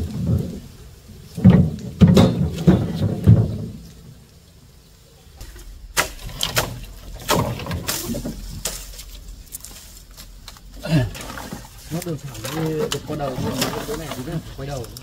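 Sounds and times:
dull thumping knocks: 1.3s - 3.9s
sharp clacking knocks: 1.4s - 3.8s.

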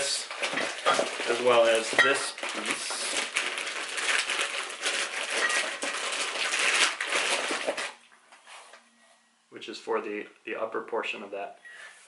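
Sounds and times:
plastic bag crinkling: 0.0s - 8.0s.

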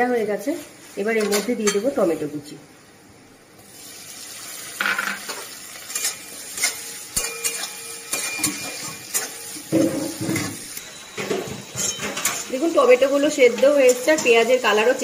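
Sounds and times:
onion and tomato sizzling in oil: 3.6s - 15.0s
spatula scraping a pan: 5.2s - 15.0s.

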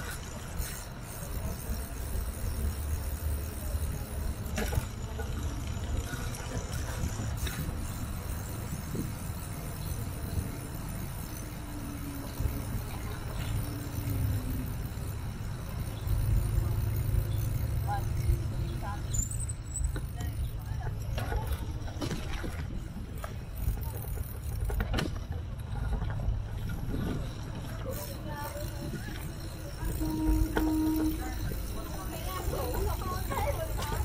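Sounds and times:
bicycle tyres rolling on pavement: 0.0s - 34.0s
wind buffeting microphone: 5.9s - 19.0s.

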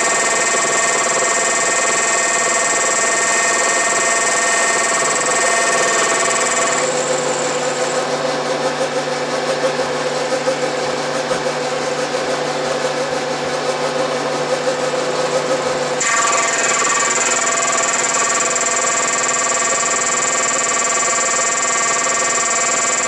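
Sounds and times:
milling machine cutting metal: 0.0s - 8.8s, 14.5s - 23.0s.

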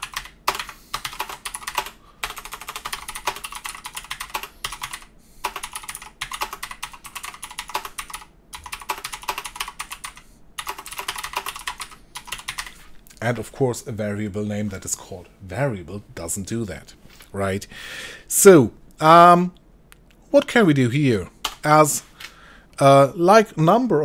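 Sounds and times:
keyboard typing: 0.0s - 12.9s.

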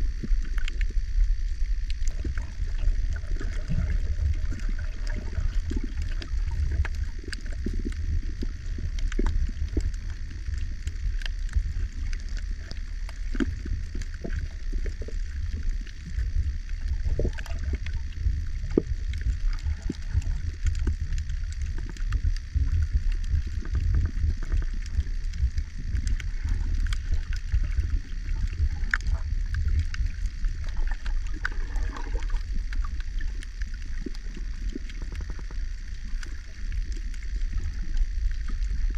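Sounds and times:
small clicks and crackles: 0.0s - 38.9s
underwater low rumble: 0.0s - 38.9s.

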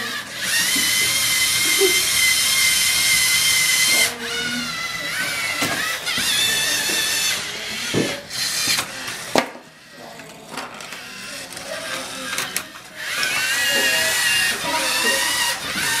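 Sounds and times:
robot electric motors whining: 0.0s - 16.0s
plastic parts clacking: 10.2s - 13.4s.

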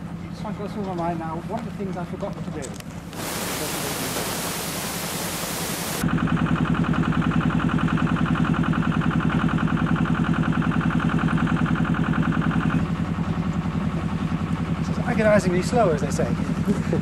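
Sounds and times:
crane engine pulsing steadily: 3.0s - 14.9s
hiss: 3.1s - 6.0s.

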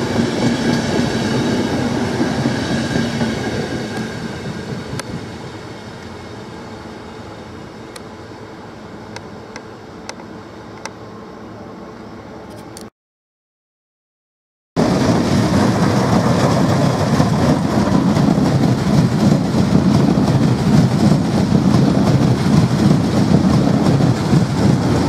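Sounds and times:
train wheels rumbling on rails: 0.0s - 11.1s, 14.8s - 25.0s.

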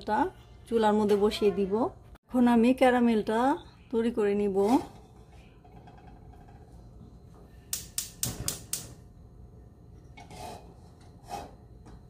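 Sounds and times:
gas stove igniter clicking: 7.7s - 9.0s.

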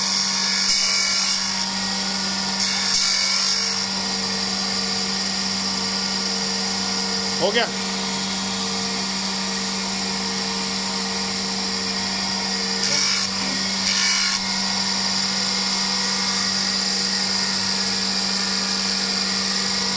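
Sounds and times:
surface grinder humming and whining: 0.0s - 19.9s
rasping grinding bursts: 2.5s - 4.0s, 12.7s - 14.8s.

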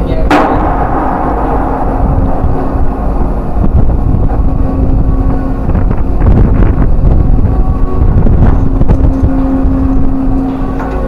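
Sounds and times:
machinery hum: 0.0s - 11.0s
wind buffeting microphone: 0.0s - 11.0s
metallic clank: 0.3s - 6.3s.

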